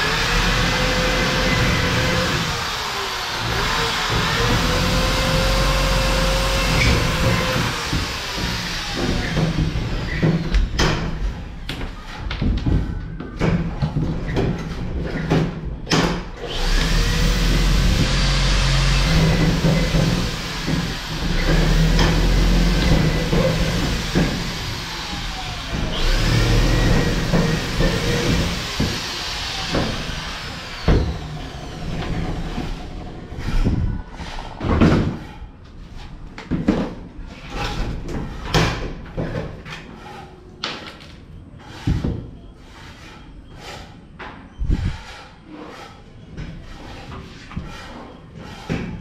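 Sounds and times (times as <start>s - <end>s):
power drill boring into board: 0.0s - 9.4s, 16.5s - 32.6s.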